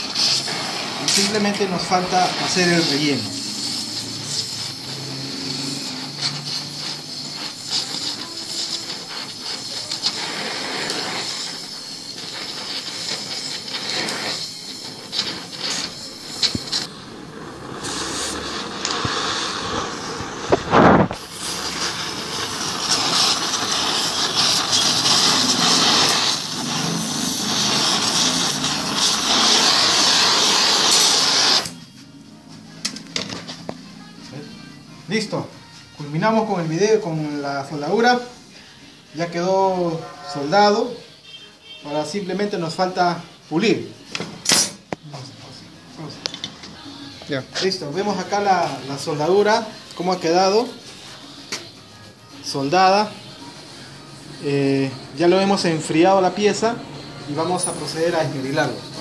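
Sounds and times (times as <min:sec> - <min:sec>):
torch flame burning: 0:00.0 - 0:31.9.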